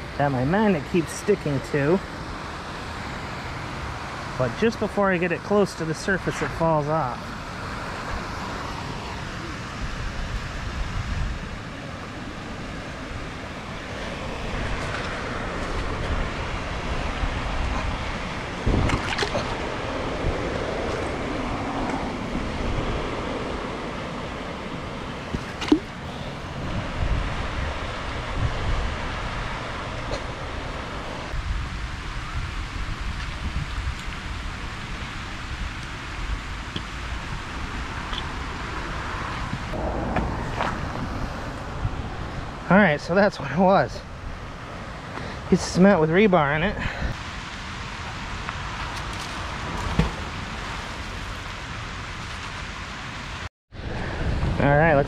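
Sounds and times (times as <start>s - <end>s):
steady low rumble: 5.8s - 33.9s, 39.4s - 45.6s
wind on microphone: 7.1s - 45.1s, 53.8s - 55.0s
water sloshing and splashing: 13.5s - 22.6s, 25.1s - 28.3s.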